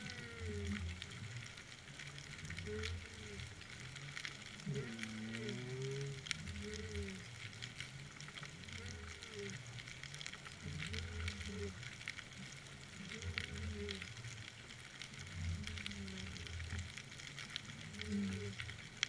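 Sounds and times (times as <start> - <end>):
fine underwater crackling: 0.0 - 19.0.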